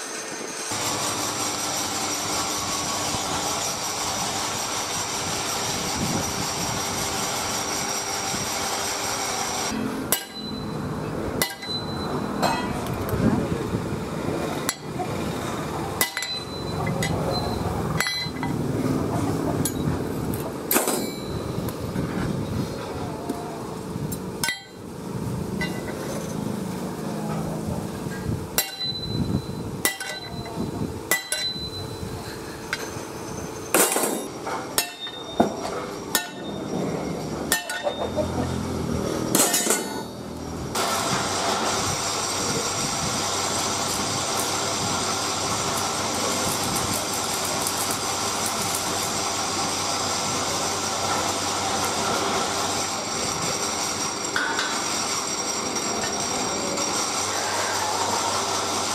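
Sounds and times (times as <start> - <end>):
sledgehammer striking steel: 9.7 - 12.8, 16.0 - 18.5, 20.7 - 21.4, 24.4 - 24.9, 28.6 - 29.2, 29.8 - 30.5, 31.1 - 31.8, 33.7 - 36.8, 37.4 - 38.2, 39.2 - 40.2
angle grinder on steel: 32.5 - 58.9.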